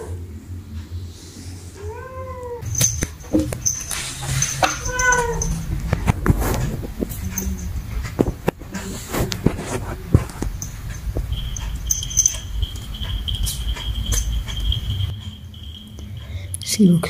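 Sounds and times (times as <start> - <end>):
low handling rumble: 0.0 - 17.0
thin high tone: 2.6 - 8.0, 10.5 - 17.0.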